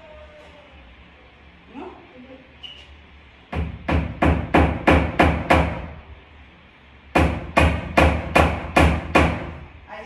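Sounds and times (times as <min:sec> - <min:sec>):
hammer striking nail into wood: 0:03.5 - 0:05.9, 0:07.1 - 0:09.6.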